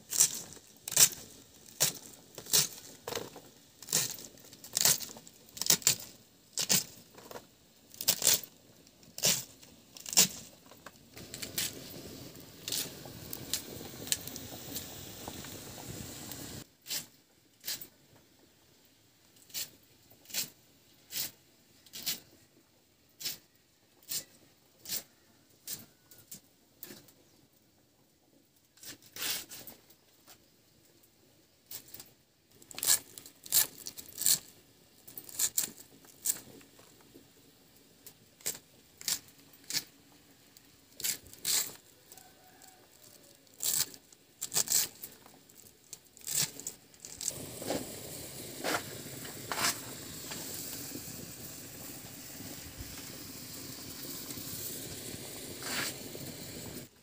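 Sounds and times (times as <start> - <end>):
eggs sizzling in hot oil: 0.0 - 18.1, 32.5 - 57.0.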